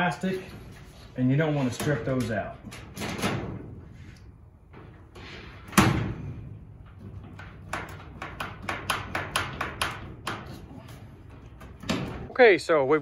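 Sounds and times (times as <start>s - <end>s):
sliding door clicks and rattles: 1.6s - 3.8s, 4.7s - 10.6s
metallic door bang: 2.8s - 3.8s, 5.4s - 10.3s.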